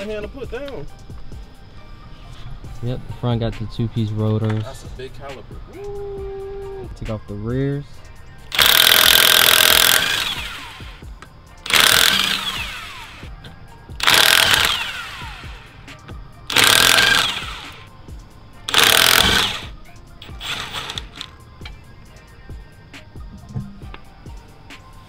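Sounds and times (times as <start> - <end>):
impact wrench hammering: 11.7 - 12.6, 14.0 - 14.8, 16.5 - 17.5, 18.7 - 21.3.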